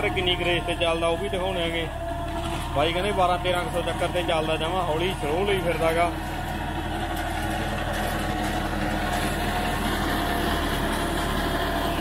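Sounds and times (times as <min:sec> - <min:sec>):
seeder rotor working soil: 0:00.0 - 0:12.0
tractor engine running: 0:00.0 - 0:12.0.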